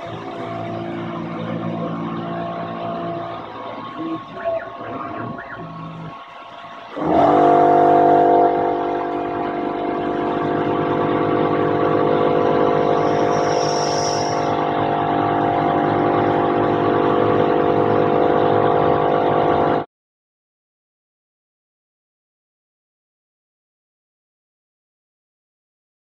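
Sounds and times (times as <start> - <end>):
milling machine cutting metal whine: 0.0 - 19.8.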